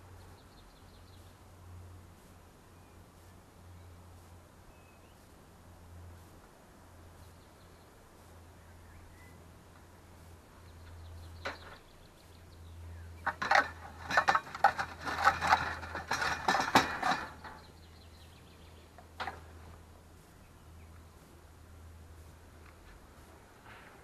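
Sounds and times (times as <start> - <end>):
hard objects clinking and clattering: 13.3 - 17.7.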